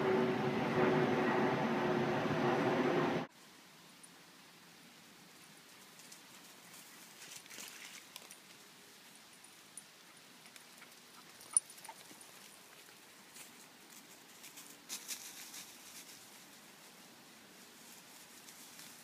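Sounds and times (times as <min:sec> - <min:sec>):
crackling in dry leaf litter: 0:05.6 - 0:09.2, 0:12.0 - 0:19.0.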